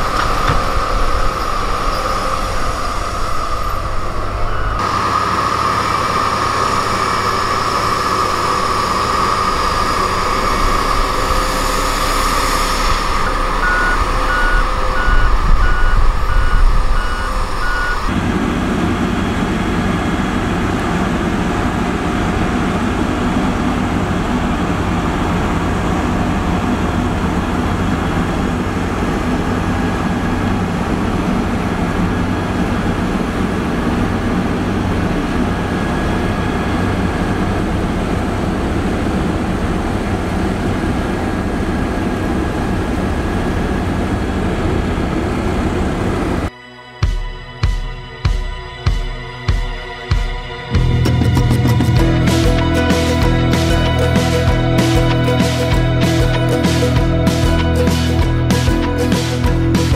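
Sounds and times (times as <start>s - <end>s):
reversing alarm beeping: 0.0s - 18.2s
road roller diesel engine: 0.0s - 46.6s, 49.3s - 59.9s.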